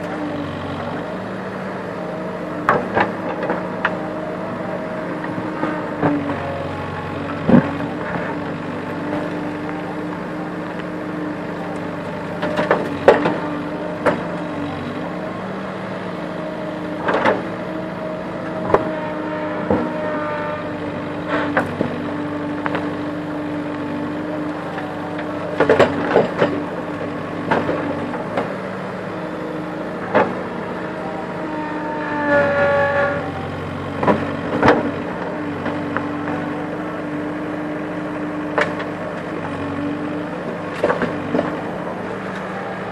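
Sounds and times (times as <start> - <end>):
diesel engine running: 0.0 - 42.9.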